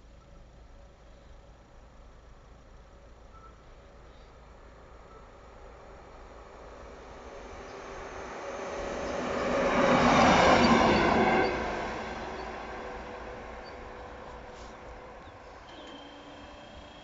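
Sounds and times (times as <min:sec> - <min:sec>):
locomotive engine and wheels: 0:00.0 - 0:17.0
steady high tone: 0:13.5 - 0:17.0.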